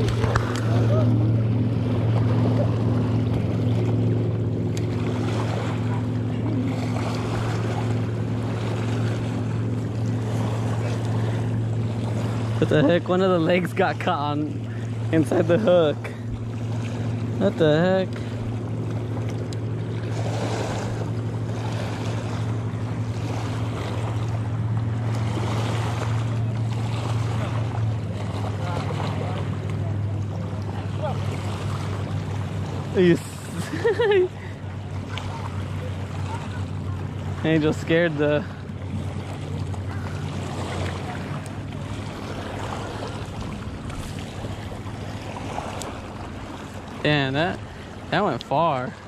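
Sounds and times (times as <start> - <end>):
steady low hum: 0.0 - 49.0
water lapping against rocky shore: 0.0 - 49.0.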